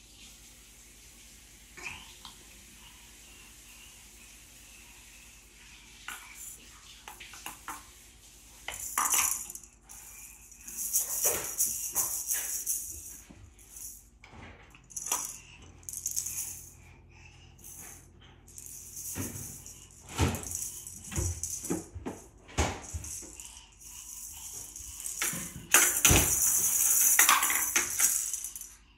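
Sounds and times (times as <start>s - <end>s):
toy rattle shaking: 6.1s - 7.7s, 8.6s - 14.1s, 14.8s - 28.9s.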